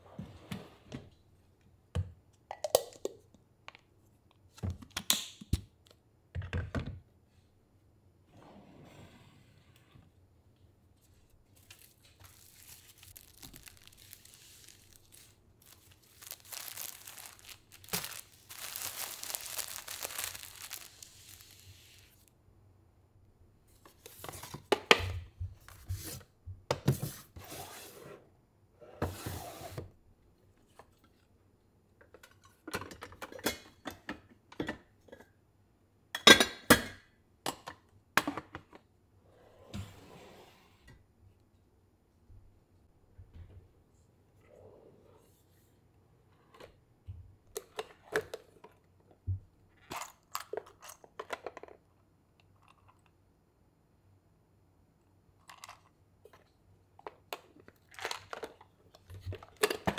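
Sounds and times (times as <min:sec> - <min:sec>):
soft rustling of items: 0:09.6 - 0:22.4, 0:23.6 - 0:28.2, 0:29.1 - 0:33.4.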